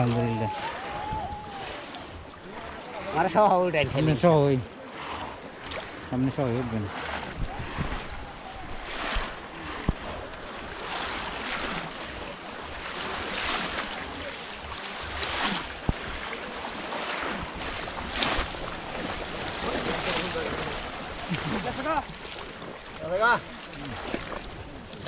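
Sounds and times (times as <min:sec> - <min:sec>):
water splashing and sloshing: 0:00.0 - 0:25.0.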